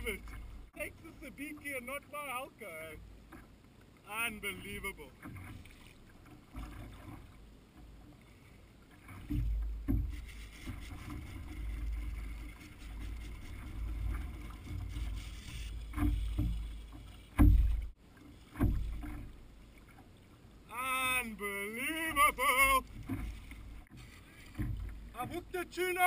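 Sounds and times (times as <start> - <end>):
wind and water rumble: 0.0 - 26.0
thumps on plastic hull: 17.3 - 17.9.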